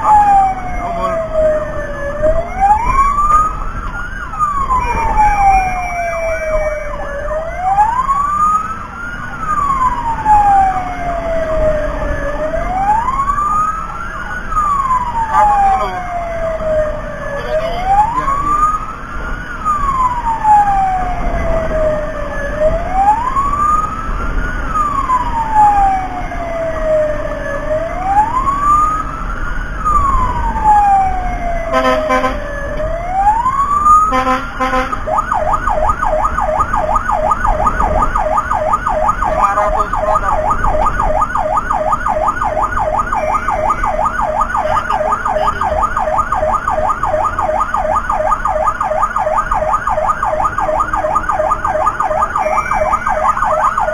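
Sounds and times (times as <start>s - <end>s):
emergency vehicle siren: 0.0s - 53.9s
short horn blasts: 31.7s - 32.4s, 34.1s - 35.0s.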